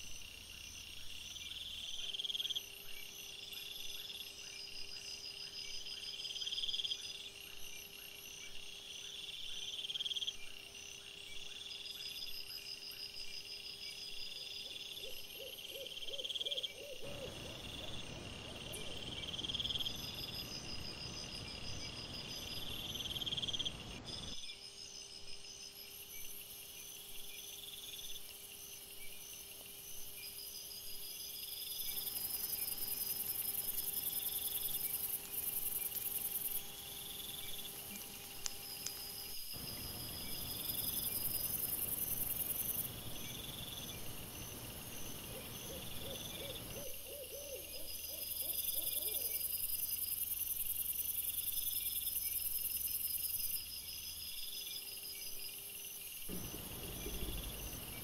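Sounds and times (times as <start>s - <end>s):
crickets chirping: 0.0s - 58.0s
higher insect trills: 31.2s - 58.0s
low even hiss: 56.3s - 58.0s.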